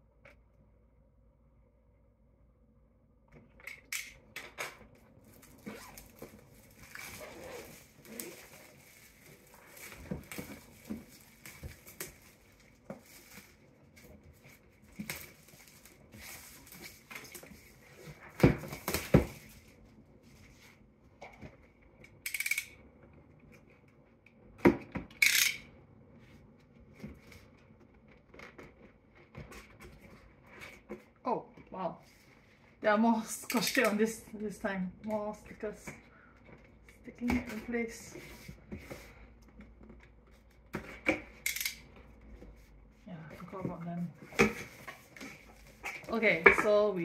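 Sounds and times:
tape tearing: 0:05.2 - 0:12.4
cardboard packaging taps and rustles: 0:16.6 - 0:19.6.

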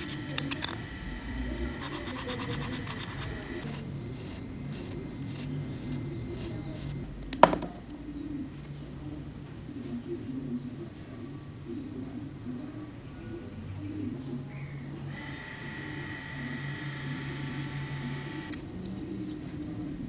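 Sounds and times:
sandpaper scraping plastic: 0:00.0 - 0:00.9, 0:01.7 - 0:07.0.

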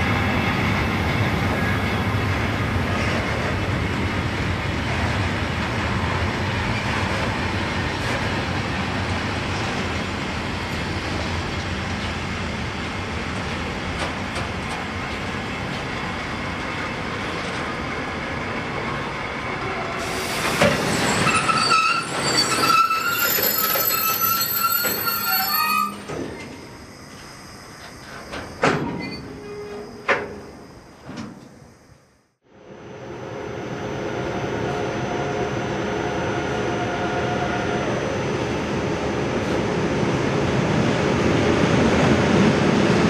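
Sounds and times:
train wheels rumbling on rails: 0:00.0 - 0:31.6, 0:38.2 - 0:43.0
train wheels squealing: 0:18.9 - 0:30.7.

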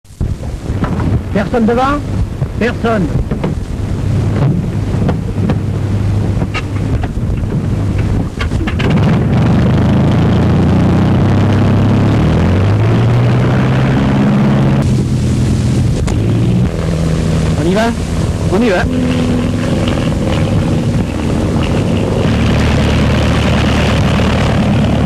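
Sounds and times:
aircraft piston engine starting: 0:14.1 - 0:25.0.

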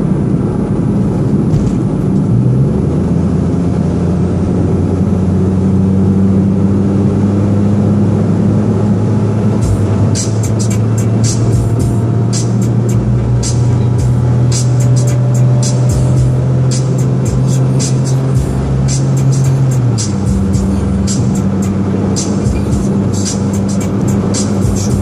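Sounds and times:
car engine and road noise: 0:00.0 - 0:25.0
sharp high ticks: 0:09.6 - 0:25.0.

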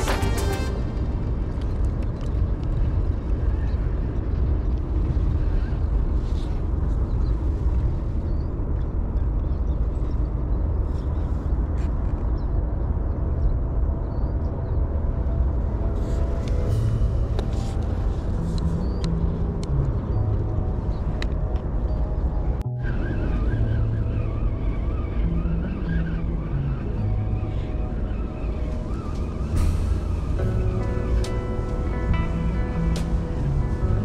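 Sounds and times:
low outdoor rumble: 0:00.0 - 0:34.0.

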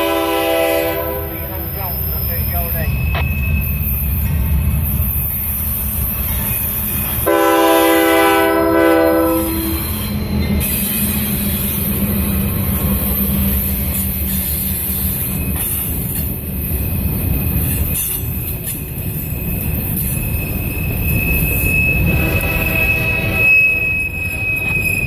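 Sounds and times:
locomotive air horn blast: 0:00.0 - 0:01.5, 0:07.2 - 0:09.8
train wheels on rails: 0:00.0 - 0:25.0.

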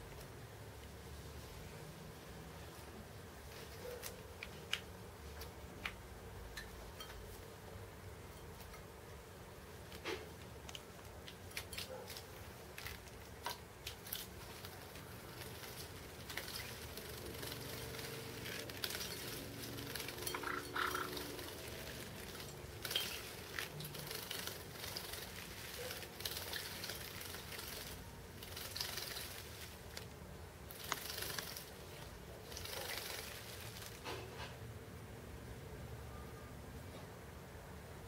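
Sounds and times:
wet wings fluttering: 0:12.7 - 0:34.1
birds splashing in water: 0:13.9 - 0:30.1, 0:30.7 - 0:34.1.

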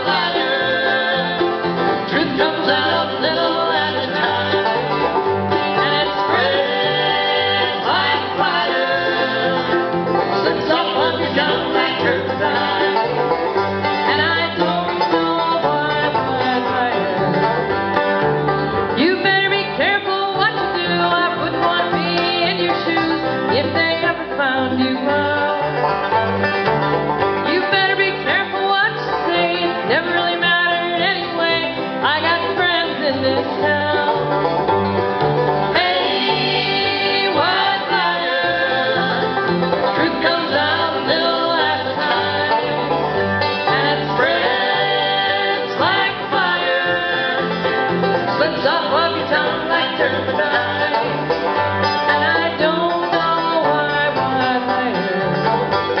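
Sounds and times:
woman singing: 0:00.0 - 0:04.6, 0:05.7 - 0:09.5, 0:10.4 - 0:13.0, 0:14.1 - 0:17.2, 0:19.0 - 0:25.6, 0:27.4 - 0:34.2, 0:35.8 - 0:39.3, 0:39.9 - 0:42.8, 0:43.6 - 0:47.4, 0:48.3 - 0:51.2, 0:52.1 - 0:55.4
acoustic guitar: 0:00.0 - 0:56.0
banjo: 0:00.0 - 0:56.0
upright bass: 0:00.0 - 0:56.0.

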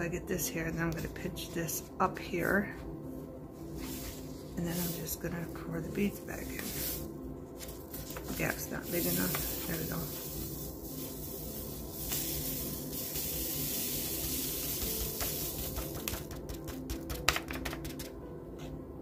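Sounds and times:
beads trickling into a jar: 0:08.8 - 0:16.4.

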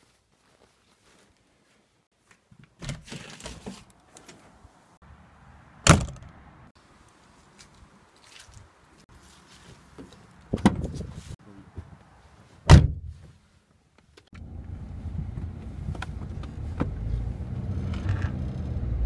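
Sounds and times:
car door slamming: 0:05.8 - 0:06.3, 0:12.7 - 0:13.1
car engine starting and running: 0:14.4 - 0:19.0.

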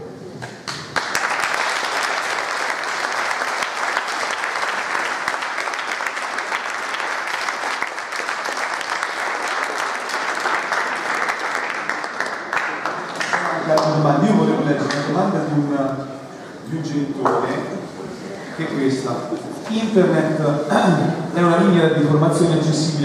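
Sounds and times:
audience applauding: 0:00.4 - 0:15.4.

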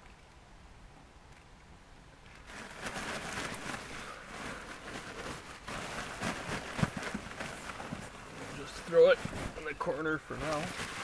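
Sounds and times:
fabric rustling and crinkling: 0:02.3 - 0:11.0.

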